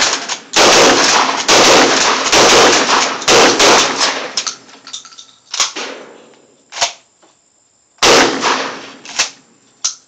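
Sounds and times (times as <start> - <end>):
shotgun blasts: 0.0 - 4.4, 8.0 - 9.0.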